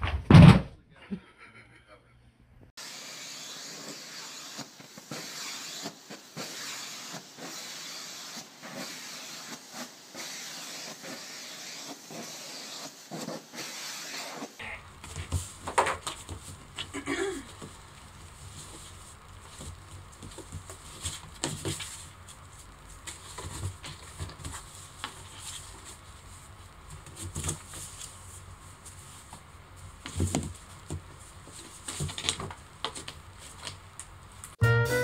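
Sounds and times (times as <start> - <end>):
kitten scratching cardboard box: 17.6 - 28.2, 29.9 - 33.8.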